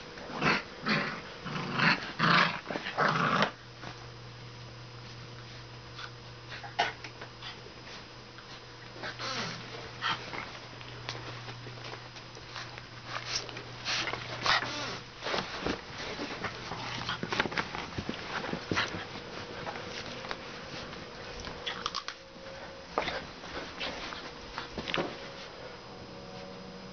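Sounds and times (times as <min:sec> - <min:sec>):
puppies scuffling: 0:07.5 - 0:25.7.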